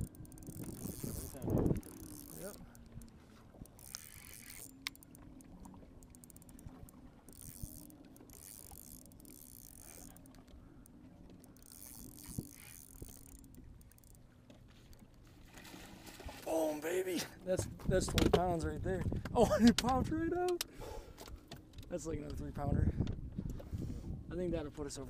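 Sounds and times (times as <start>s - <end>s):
wind or water hiss: 0.0s - 5.1s
boat low hum: 0.0s - 25.0s.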